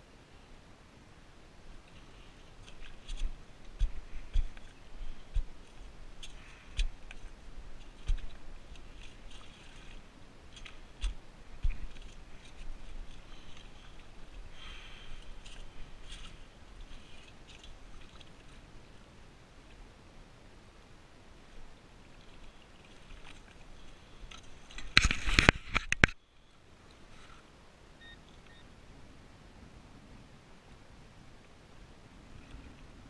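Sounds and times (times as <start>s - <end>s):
sand and stones crunching: 1.7s - 18.7s.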